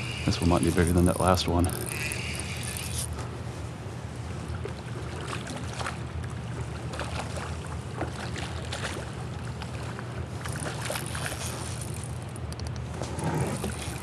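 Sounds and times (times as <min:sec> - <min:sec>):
fish splashing at water surface: 0:06.8 - 0:12.3.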